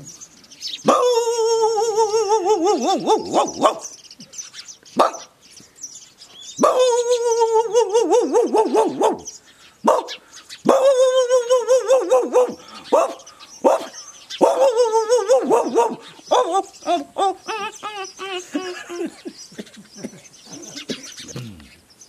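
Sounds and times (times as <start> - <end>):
man howling like a dog: 0.9 - 3.6, 6.6 - 9.3, 10.7 - 13.1, 14.4 - 18.4.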